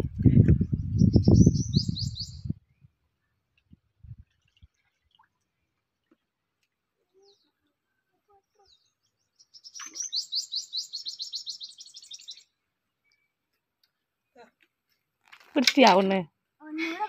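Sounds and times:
bird chirping: 0:00.5 - 0:03.4, 0:08.5 - 0:14.4
rapid high bird trill: 0:09.5 - 0:12.4.

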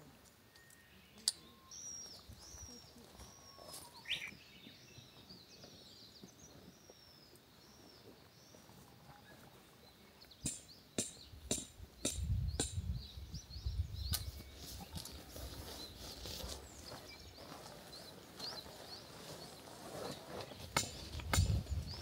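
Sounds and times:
faint birds chirping: 0:00.0 - 0:22.0.

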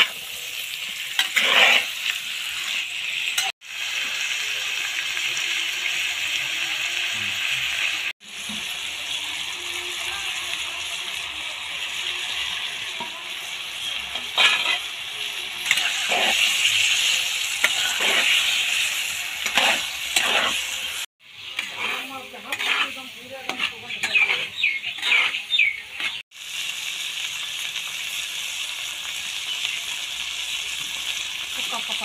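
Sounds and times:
metal spatula scraping wok: 0:00.0 - 0:03.5, 0:11.2 - 0:26.2
meat sizzling in a wok: 0:00.0 - 0:32.0.

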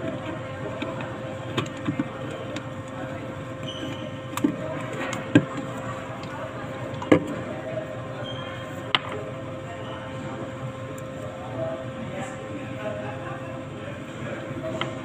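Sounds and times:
murmur of background noise: 0:00.0 - 0:15.0.

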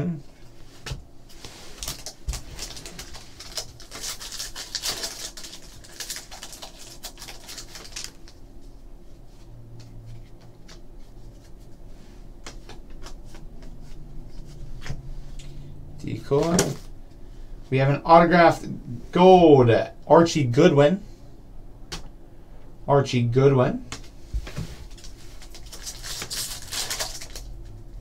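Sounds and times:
foil wrapper crackling: 0:01.7 - 0:08.4, 0:24.9 - 0:27.7.

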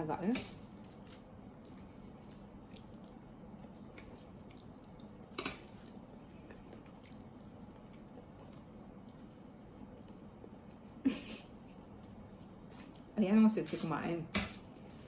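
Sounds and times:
person chewing soft pasta: 0:00.8 - 0:10.7.

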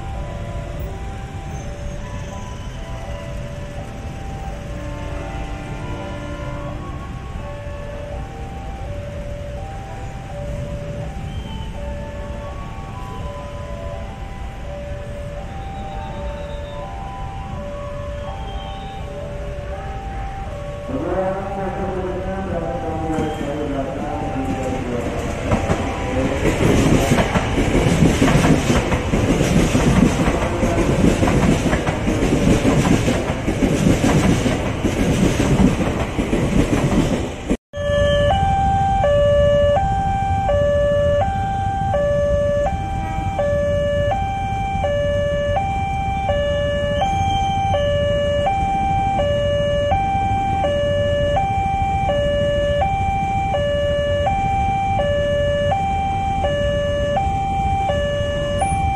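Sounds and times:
level crossing two-tone alarm: 0:00.0 - 0:04.8, 0:06.4 - 0:21.4, 0:37.8 - 0:58.9
electric train passing: 0:00.0 - 0:58.9
low train rumble: 0:00.0 - 0:58.9.

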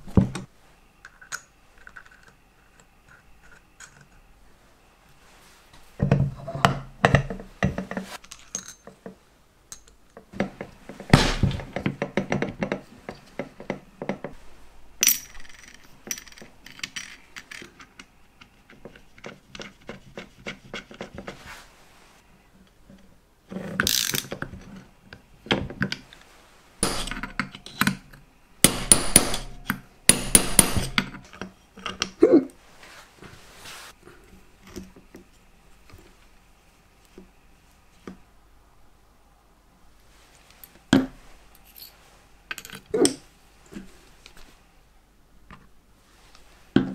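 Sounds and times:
tools clicking and clattering on metal: 0:26.8 - 0:28.1.

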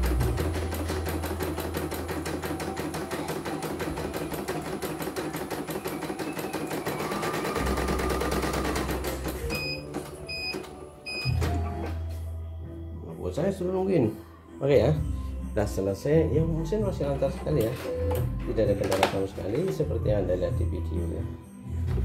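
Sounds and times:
embroidery machine stitching: 0:00.0 - 0:10.8.

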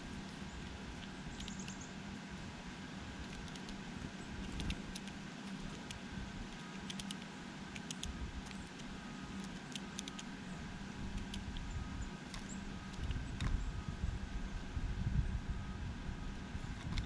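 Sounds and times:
steady low hum: 0:00.0 - 0:17.0
bird pecking at food: 0:00.6 - 0:01.8, 0:03.2 - 0:03.8, 0:04.4 - 0:10.3, 0:11.1 - 0:11.7.

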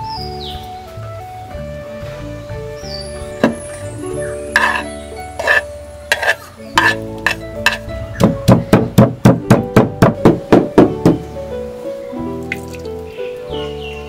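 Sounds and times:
background music: 0:00.0 - 0:14.0
wooden pestle pounding in mortar: 0:05.4 - 0:11.2.

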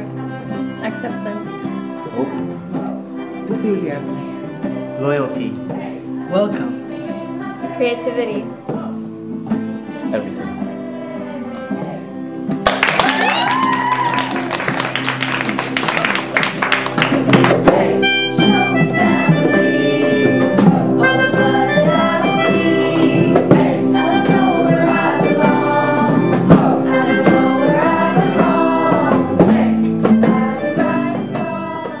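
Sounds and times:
melodic music: 0:12.7 - 0:29.0.

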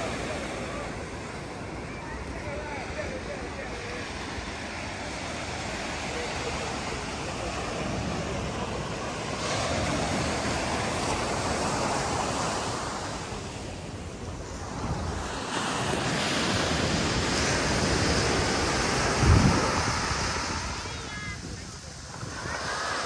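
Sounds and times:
surf washing onto beach: 0:00.0 - 0:23.0
wind buffeting microphone: 0:14.3 - 0:23.0.

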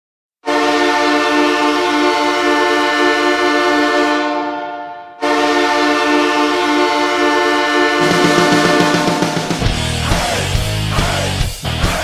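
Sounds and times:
hockey goal horn blast: 0:00.4 - 0:09.8.

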